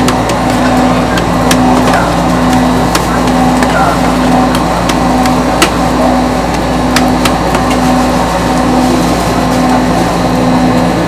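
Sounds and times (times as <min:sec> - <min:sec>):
machine hum: 0:00.0 - 0:11.0.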